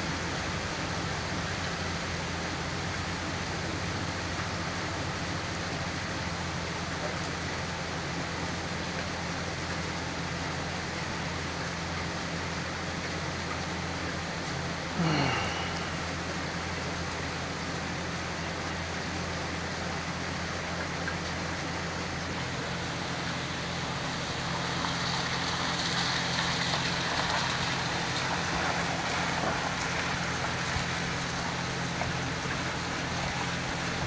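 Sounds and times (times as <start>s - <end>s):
rain falling on puddles: 0.0s - 34.0s.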